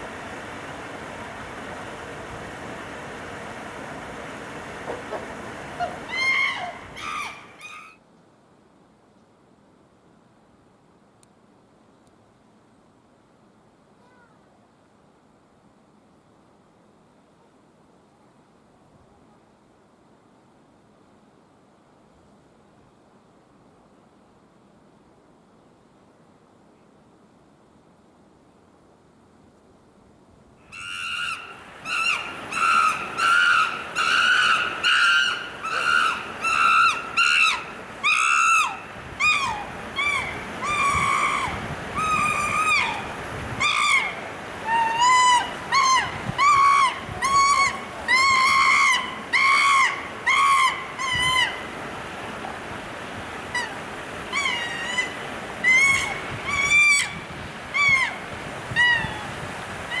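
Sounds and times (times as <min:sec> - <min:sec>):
chimpanzee screaming: 0:05.8 - 0:08.0, 0:30.7 - 0:51.6, 0:53.5 - 1:00.0.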